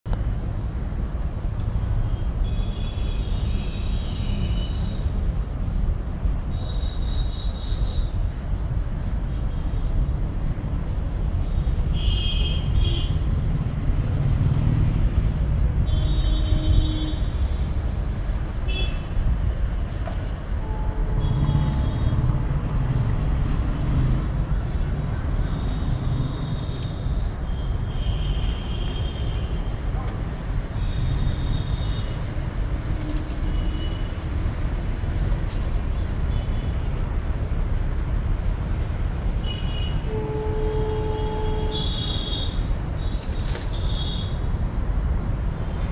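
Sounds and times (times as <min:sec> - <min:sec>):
traffic rumble: 0:00.0 - 0:45.9
vehicle horn honks: 0:39.4 - 0:42.6.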